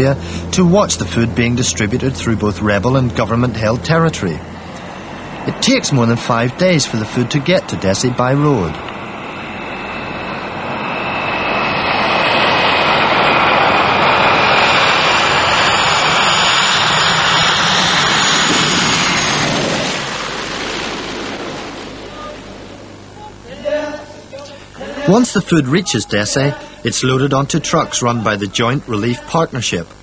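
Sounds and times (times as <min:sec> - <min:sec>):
turboprop plane flying past: 0:00.0 - 0:23.2
high turbine whine: 0:00.0 - 0:30.0.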